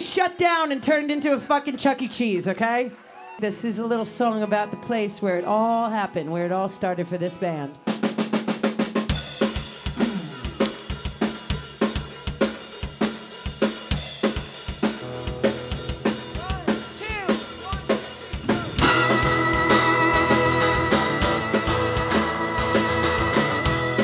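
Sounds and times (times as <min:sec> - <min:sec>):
rock band with guitars and keyboard: 0:04.2 - 0:24.0
drum kit beat: 0:07.9 - 0:24.0.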